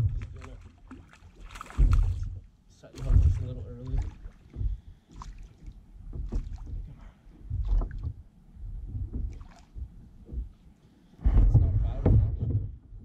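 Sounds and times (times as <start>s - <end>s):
low rumble: 0.0s - 0.7s
short knocks or splashes: 0.0s - 8.2s, 8.8s - 10.6s
water at boat side: 0.0s - 13.0s.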